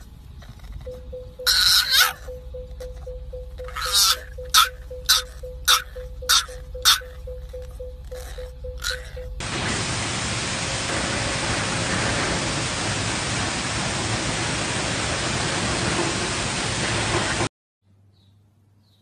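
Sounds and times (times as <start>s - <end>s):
loud static-like hiss: 9.4s - 17.5s.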